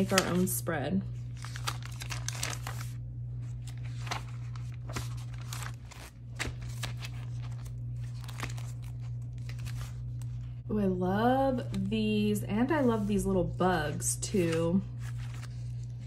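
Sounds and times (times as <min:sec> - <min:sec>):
paper pages flipping and rustling: 0:00.0 - 0:00.5, 0:01.2 - 0:10.6, 0:14.3 - 0:16.0
sticker book pages crinkling: 0:00.0 - 0:00.5, 0:01.2 - 0:10.6, 0:14.3 - 0:16.0
steady low hum: 0:00.0 - 0:16.0.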